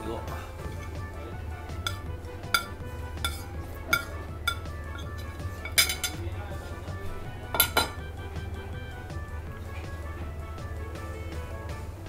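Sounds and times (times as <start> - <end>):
background music: 0.0 - 12.0
metal spoon clinking on plate: 1.8 - 6.2, 7.6 - 8.0.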